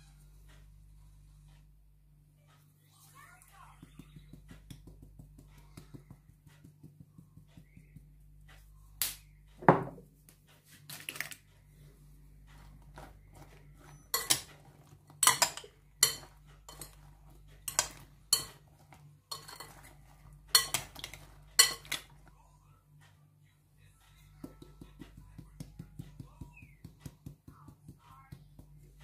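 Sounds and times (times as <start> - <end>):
metal spoon clinking glass bowl: 13.4 - 22.3.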